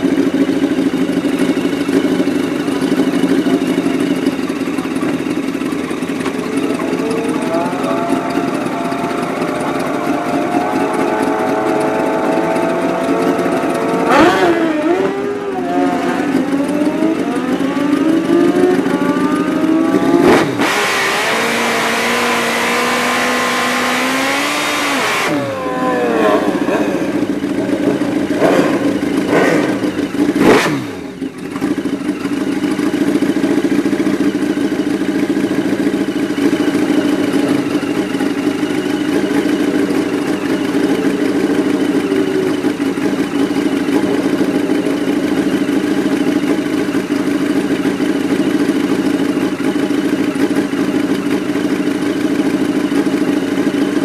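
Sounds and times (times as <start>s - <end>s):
hard-running engine noise: 0.0s - 54.0s
motorcycle engine idling: 0.0s - 54.0s.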